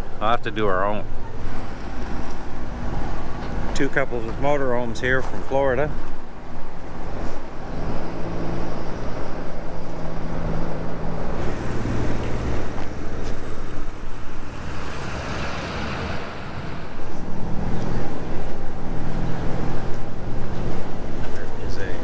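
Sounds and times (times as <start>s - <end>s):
motor engine hum: 0.0s - 22.0s.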